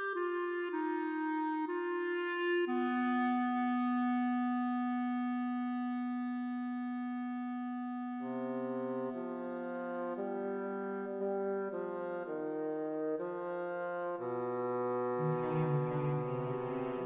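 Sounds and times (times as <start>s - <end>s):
instrumental chords: 14.1s - 17.0s.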